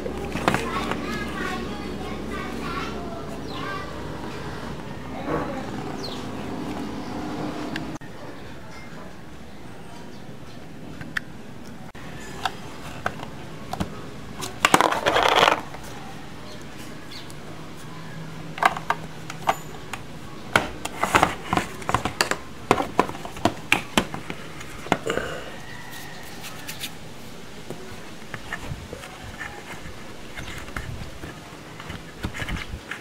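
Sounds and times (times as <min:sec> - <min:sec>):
plastic toy clicking and knocking: 0:18.6 - 0:25.1.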